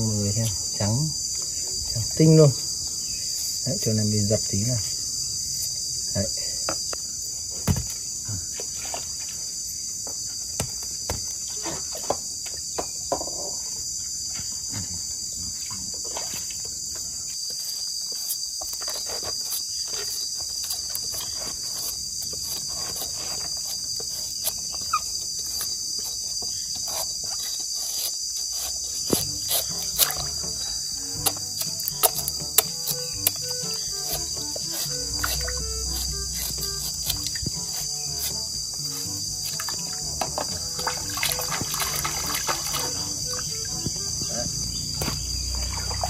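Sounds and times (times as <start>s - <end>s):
high-pitched insect chorus: 0.0s - 46.0s
knife cutting bamboo shoot: 17.4s - 44.2s.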